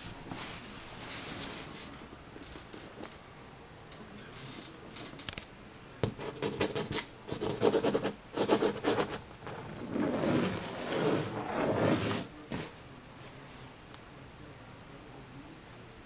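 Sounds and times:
scratching and rubbing: 0:06.1 - 0:12.8.

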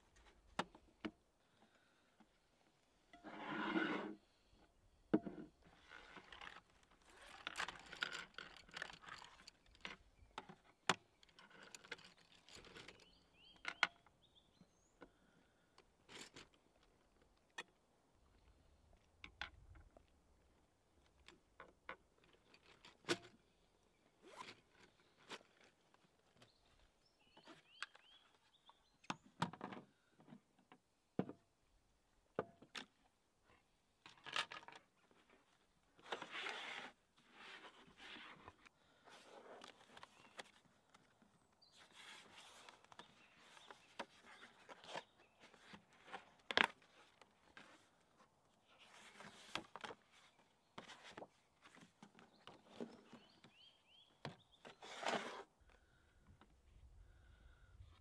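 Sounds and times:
zipper: 0:24.2 - 0:24.6, 0:36.0 - 0:38.4, 0:54.8 - 0:55.5.

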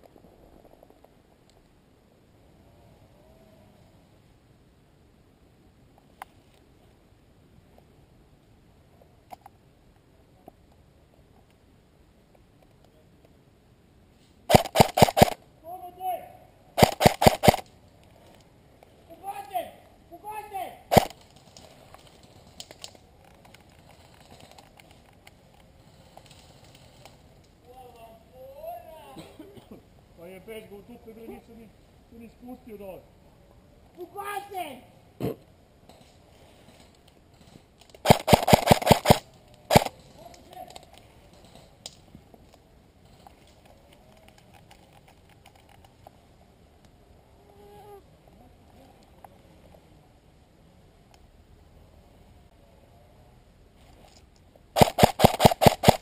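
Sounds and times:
rustling dry leaves and twigs: 0:20.9 - 0:28.2.

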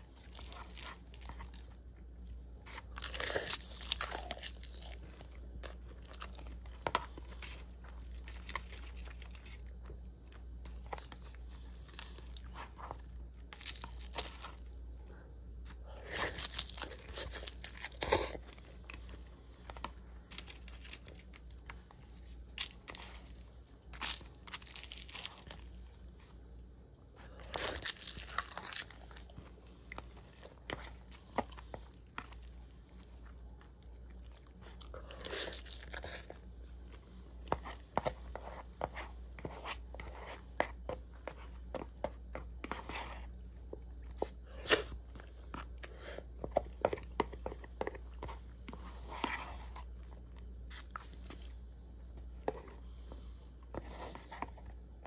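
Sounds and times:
crisp crunching and chewing: 0:00.0 - 0:14.8, 0:15.6 - 0:19.2, 0:20.2 - 0:25.9, 0:27.2 - 0:36.5.

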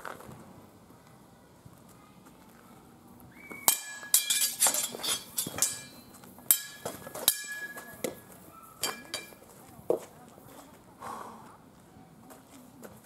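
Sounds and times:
swords clashing: 0:03.7 - 0:08.2, 0:08.8 - 0:09.4.

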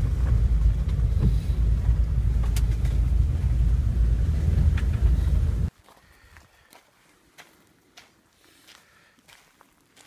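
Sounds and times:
van road and engine rumble: 0:00.0 - 0:05.8.

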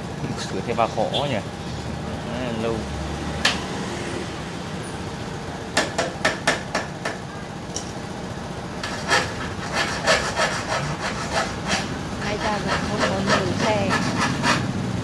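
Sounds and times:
sharp knocks: 0:05.8 - 0:07.2.

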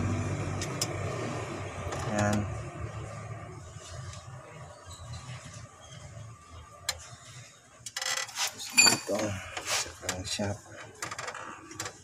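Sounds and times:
metal tools clinking and rattling: 0:08.4 - 0:09.4.

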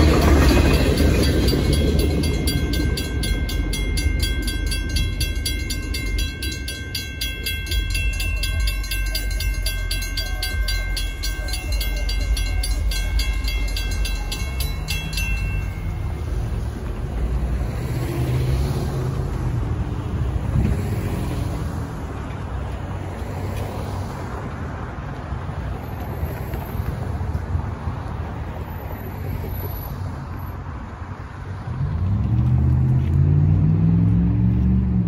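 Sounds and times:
cars driving with low rumble: 0:00.0 - 0:35.0
vehicle accelerating past: 0:31.6 - 0:35.0.

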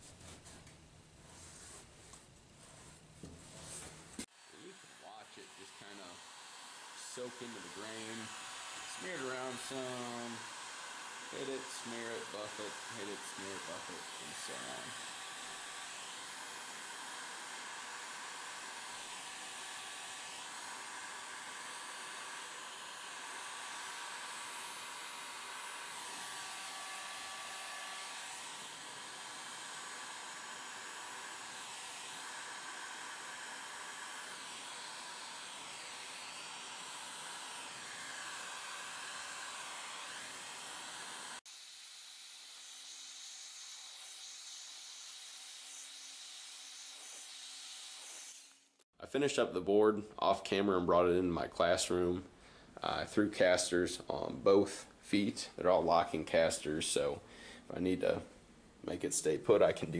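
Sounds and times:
heat gun blowing: 0:04.2 - 0:48.8.

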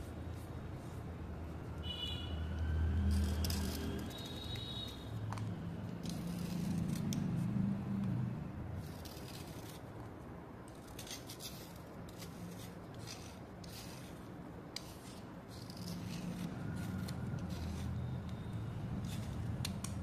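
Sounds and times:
metal blade scraping slate: 0:03.0 - 0:04.7, 0:06.0 - 0:07.4, 0:08.8 - 0:09.9, 0:10.7 - 0:18.4.

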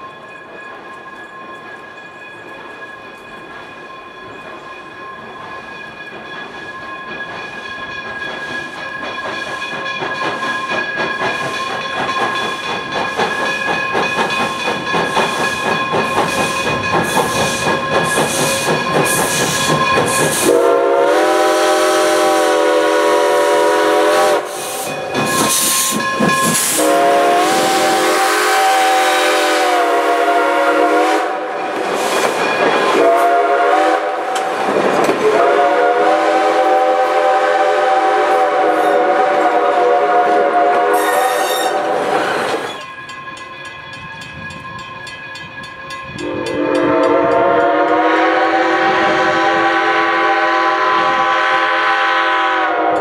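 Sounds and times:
steam locomotive chuffing: 0:01.5 - 0:53.0
steam whistle blasts: 0:20.3 - 0:31.6, 0:32.9 - 0:34.6, 0:35.2 - 0:42.8, 0:46.2 - 0:53.0.

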